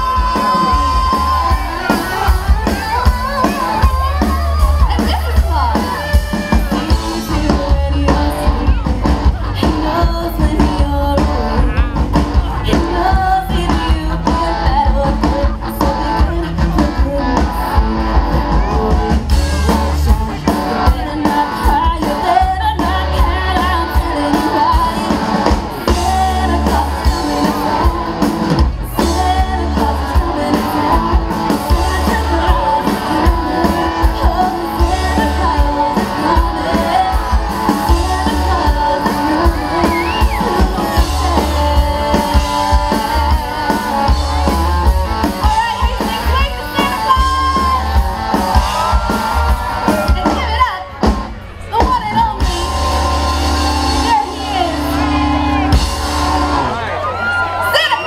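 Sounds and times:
woman singing into a microphone: 0.0 - 6.1, 6.8 - 11.8, 12.4 - 17.8, 20.4 - 48.0
steady bass beat: 0.0 - 50.7, 51.9 - 56.9
electric guitar: 0.0 - 58.0.

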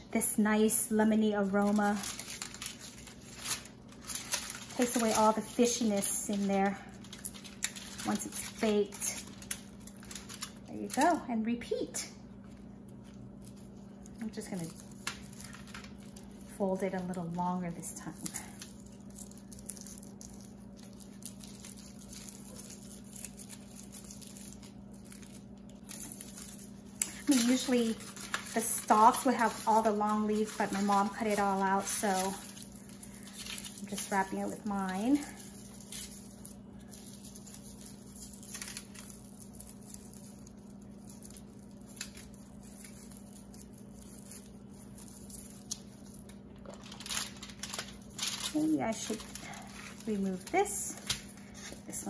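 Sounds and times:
steady low hum: 0.0 - 52.0
leaves rustling and crackling: 0.6 - 11.1, 13.4 - 16.6, 17.3 - 52.0.

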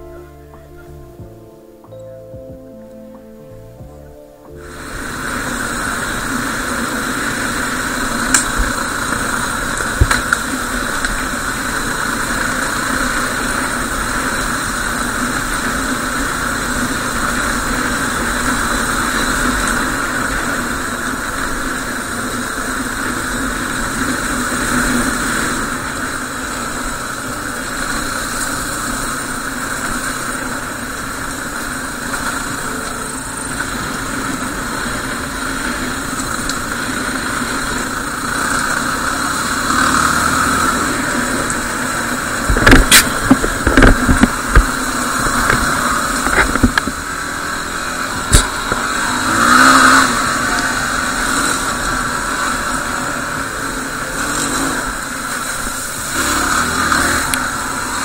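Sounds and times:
motorcycle engine running: 3.8 - 58.0.

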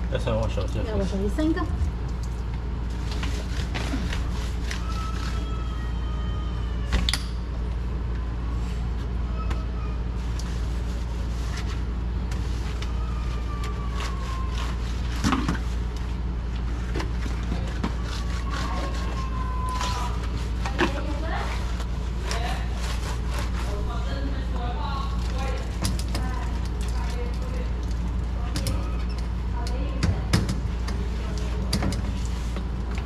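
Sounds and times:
steady low hum: 0.0 - 33.0
wet sponge scrubbing tile: 10.2 - 15.9, 17.3 - 24.4.

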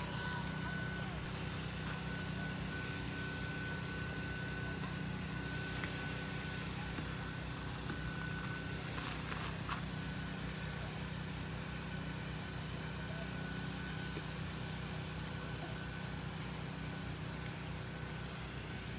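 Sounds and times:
thin high steady tone: 0.0 - 9.1
low mechanical hum: 0.0 - 18.9.

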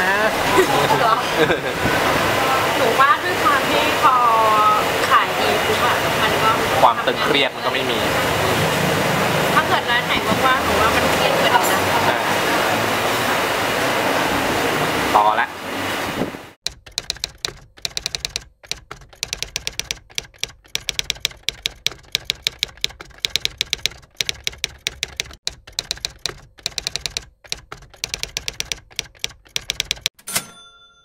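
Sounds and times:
typewriter keys clacking: 16.6 - 30.2
typewriter bell ding: 16.7 - 22.7, 28.0 - 31.0.

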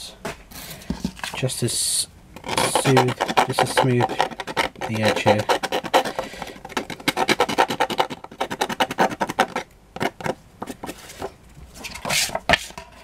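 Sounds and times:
brushing sound: 2.5 - 6.3
nail file rubbing paper: 2.5 - 10.2.

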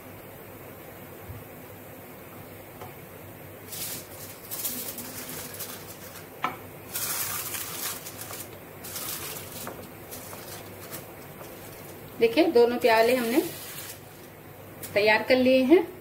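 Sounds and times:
aluminium foil crinkling: 3.7 - 15.0.

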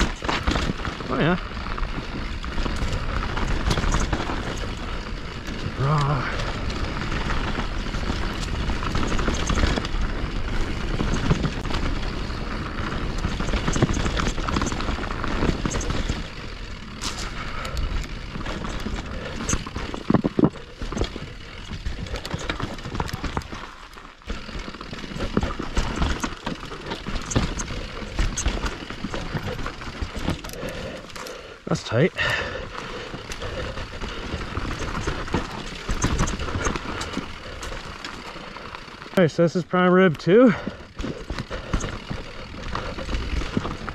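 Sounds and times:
bike knocking and rattling on rocks: 0.0 - 43.9.

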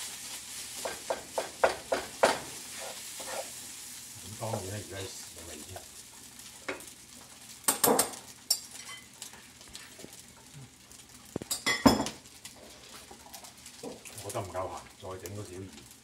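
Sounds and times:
utensils clinking against dishes: 7.7 - 9.2, 11.5 - 12.2.

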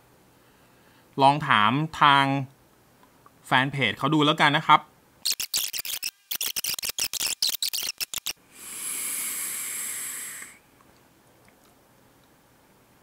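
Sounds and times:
fast sharp clicks: 5.2 - 8.4
steady hiss of atomizer: 5.9 - 10.7.

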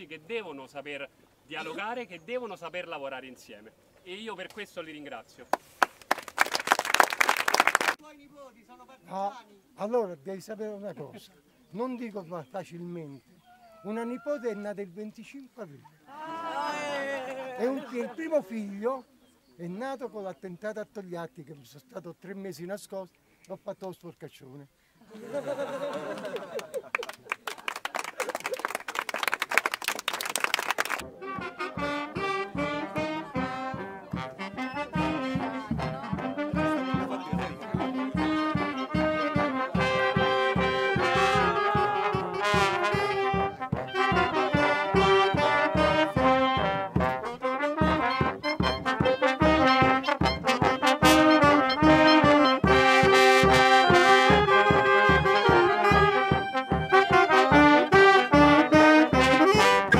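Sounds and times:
people clapping: 5.5 - 8.0, 16.3 - 18.0, 25.8 - 31.1
bass drum beat: 31.0 - 59.9
brass band playing: 31.0 - 59.9.

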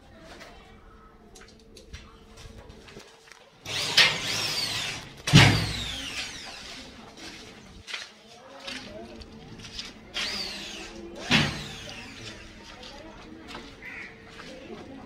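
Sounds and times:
electric drill motor whine: 3.6 - 6.6, 10.2 - 12.2.

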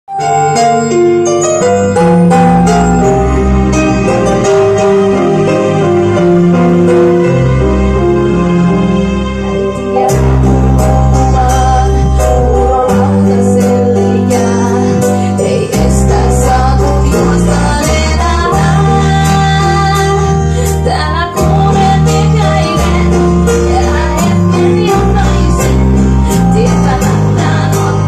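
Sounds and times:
backing track with beat and bass: 0.1 - 28.0
woman singing into microphone: 11.1 - 28.0.

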